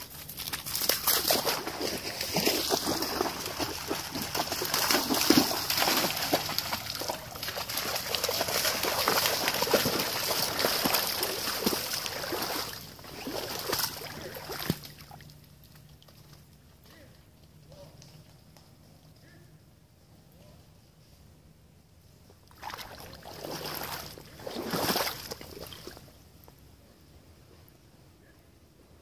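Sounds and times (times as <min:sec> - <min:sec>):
footsteps splashing through water: 0:00.0 - 0:16.4, 0:22.5 - 0:26.1.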